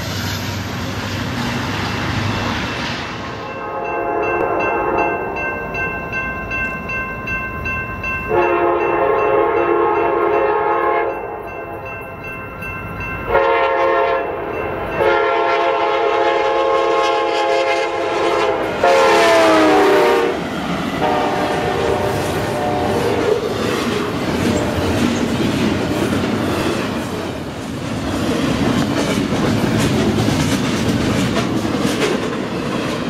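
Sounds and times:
crossing bell ringing: 3.3 - 17.3
locomotive air horn blasts: 3.5 - 5.1, 8.3 - 11.4, 13.3 - 14.4, 15.0 - 20.4, 21.0 - 23.4.

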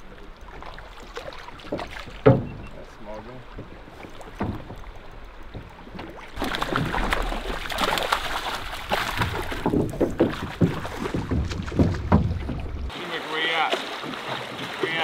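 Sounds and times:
sharp knocks: 1.7 - 2.7, 9.0 - 12.9
fish splashing in a net: 6.4 - 12.0.

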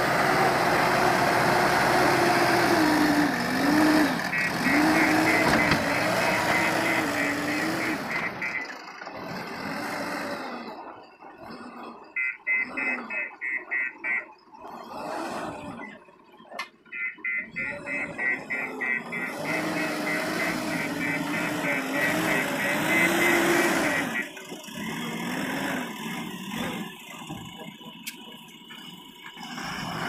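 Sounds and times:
diesel engine running loudly: 0.0 - 30.0
reversing alarm beeping: 3.0 - 8.9, 10.6 - 16.0, 16.8 - 24.6.

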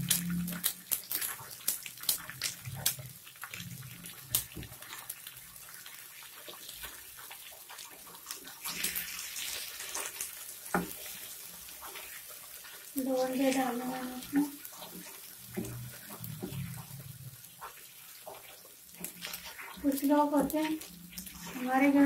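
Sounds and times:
eggs sizzling in a pan: 0.0 - 22.0
spatula scraping a pan: 13.6 - 22.0.

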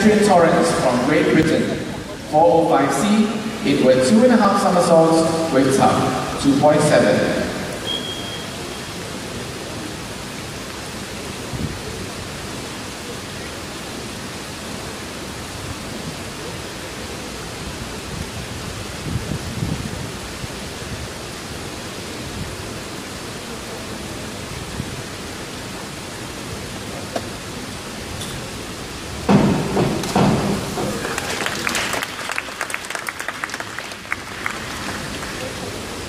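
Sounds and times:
faint low murmurs: 0.0 - 7.8
indoor hall background hiss: 0.0 - 36.0.

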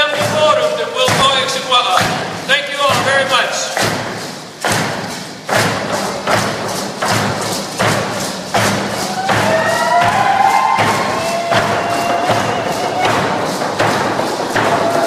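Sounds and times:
drum beating a dance beat: 0.0 - 15.0
voices singing held notes: 8.6 - 15.0.

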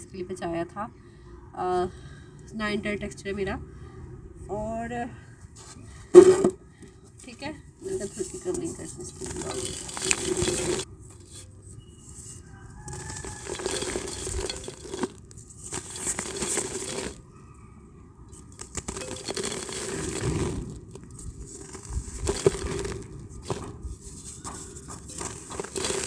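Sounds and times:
grains pouring into clay pot: 7.8 - 11.4, 12.9 - 17.2, 18.4 - 26.0
dry clay crushed by hand: 8.0 - 11.4, 12.8 - 17.2, 18.4 - 26.0.

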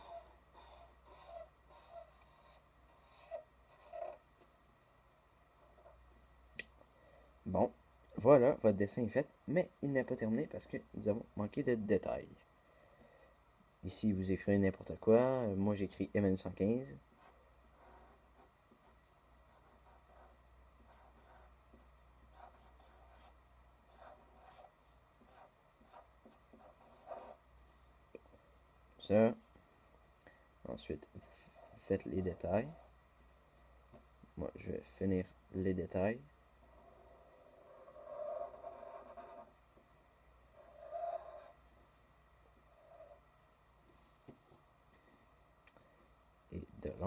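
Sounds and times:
marker scratching on paper: 0.0 - 4.2, 17.2 - 27.4, 36.7 - 39.5, 40.6 - 41.6
marker strokes on paper: 0.0 - 4.2.

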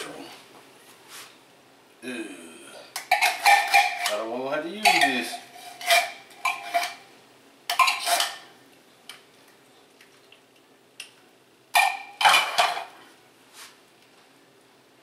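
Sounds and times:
metal spoon scraping metal pot: 3.0 - 4.2, 4.8 - 7.0, 7.7 - 8.5.

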